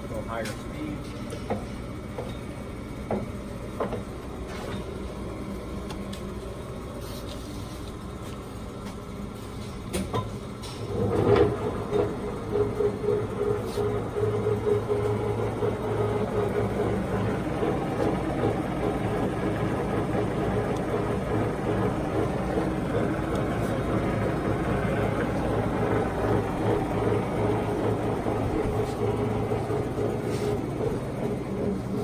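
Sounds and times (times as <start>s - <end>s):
lathe gear whine: 10.4s - 32.0s.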